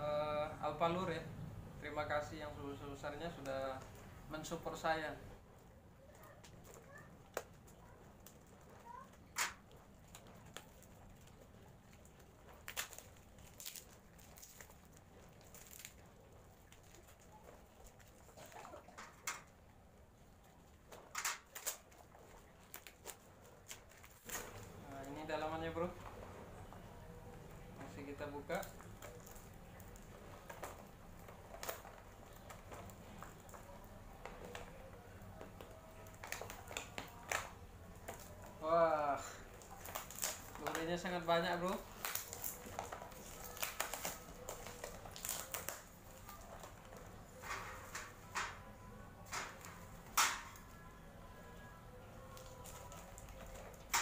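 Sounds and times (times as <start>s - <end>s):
plastic wrapping crinkling: 6.0s - 54.0s
scissors snipping plastic wrap: 9.2s - 17.4s, 21.1s - 25.9s, 28.0s - 38.5s, 39.3s - 48.6s, 49.2s - 50.9s, 51.7s - 54.0s.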